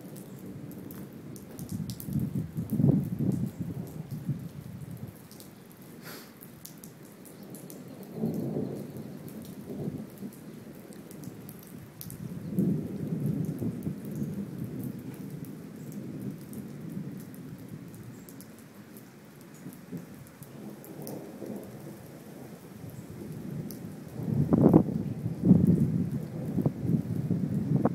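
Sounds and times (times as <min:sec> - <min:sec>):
rain pattering: 0:00.0 - 0:27.9
thunder rumbling: 0:12.2 - 0:17.2, 0:23.2 - 0:27.9.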